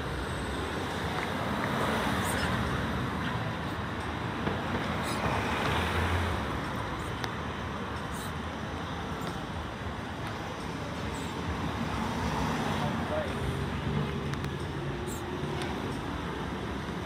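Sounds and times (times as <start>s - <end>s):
city street traffic: 0.0s - 17.0s.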